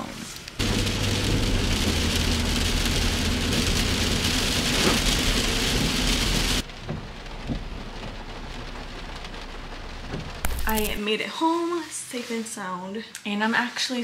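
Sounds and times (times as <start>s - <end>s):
heavy rain on car roof: 0.0s - 11.0s
engine and road hum: 0.5s - 11.0s.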